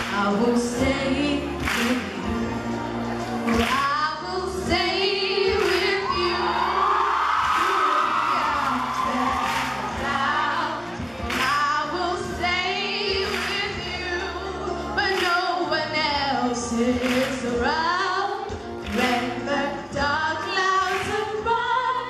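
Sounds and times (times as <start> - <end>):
girls singing duet: 0.0 - 22.0.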